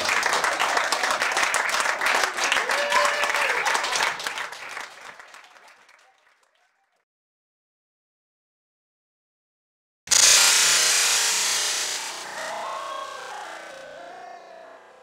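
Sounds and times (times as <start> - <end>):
audience applauding: 0.0 - 7.0, 12.0 - 15.0
voices calling out: 12.1 - 15.0.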